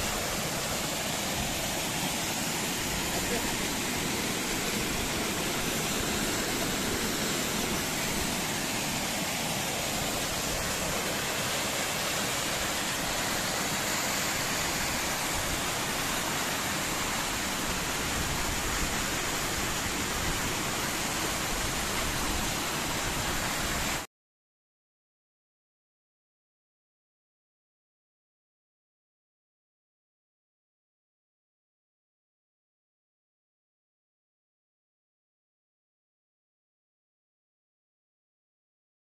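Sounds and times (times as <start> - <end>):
stream splashing over boulders: 0.0 - 24.0
waterfall pouring onto rocks: 0.0 - 24.1.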